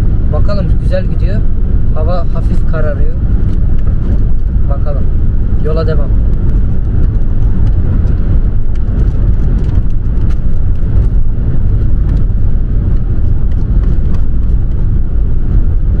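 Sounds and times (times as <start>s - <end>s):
car road rumble: 0.0s - 16.0s.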